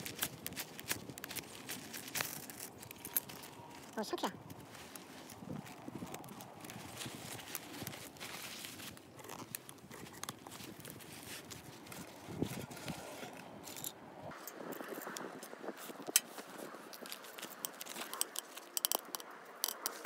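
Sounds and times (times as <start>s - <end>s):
faint rustling: 0.0s - 14.0s.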